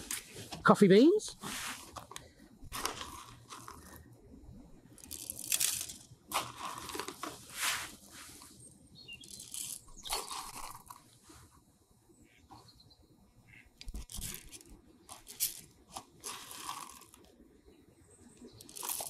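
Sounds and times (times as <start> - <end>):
coffee beans shifting: 1.3 - 4.1, 4.9 - 11.4, 13.9 - 17.3, 18.5 - 19.0
coffee bean bag crinkling: 2.7 - 4.0, 5.0 - 7.9, 9.2 - 11.0, 14.0 - 17.3, 18.6 - 19.0.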